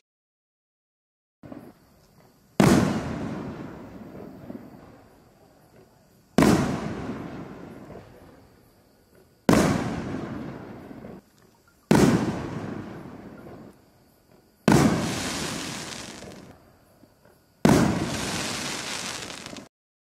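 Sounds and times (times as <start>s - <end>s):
firework shell booms: 2.6s - 4.7s, 6.4s - 8.1s, 9.5s - 11.2s, 11.9s - 13.7s, 14.7s - 16.5s, 17.6s - 19.7s.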